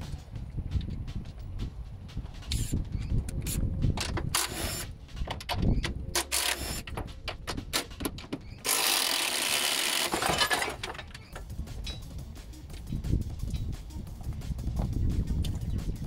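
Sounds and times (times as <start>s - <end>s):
ratchet wrench clicking: 2.4s - 7.1s, 7.7s - 10.2s.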